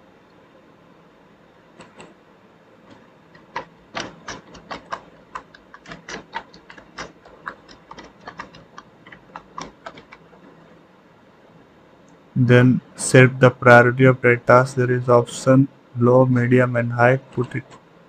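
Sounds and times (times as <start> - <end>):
keyboard typing: 1.8 - 2.2, 2.9 - 10.8.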